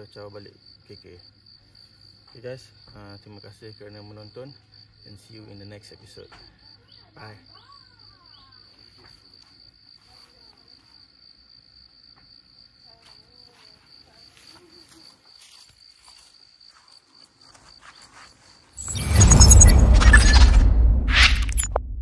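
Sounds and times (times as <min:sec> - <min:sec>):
insect trilling: 0:17.4 - 0:21.7.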